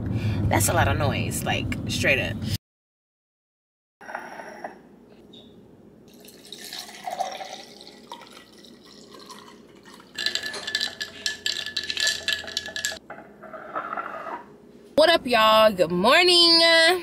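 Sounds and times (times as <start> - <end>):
liquid poured into glass: 6.1 - 13.0.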